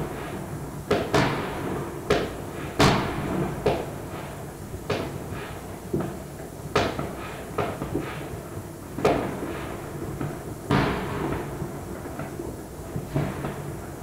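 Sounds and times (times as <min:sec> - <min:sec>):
muffled firecracker bangs: 0:00.9 - 0:05.2, 0:10.2 - 0:12.3.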